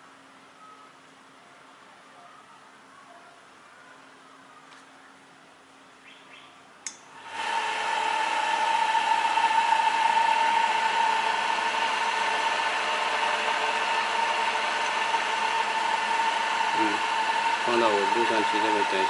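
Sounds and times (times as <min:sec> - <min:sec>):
electric motor whining: 0:07.2 - 0:19.0.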